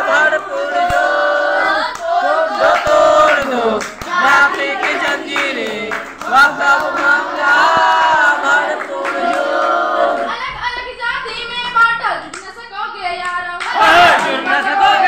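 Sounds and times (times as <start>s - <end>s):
women singing in unison: 0.0s - 10.7s, 13.0s - 15.0s
hand claps: 0.8s - 1.1s, 1.8s - 10.3s, 12.2s - 12.6s, 13.2s - 15.0s.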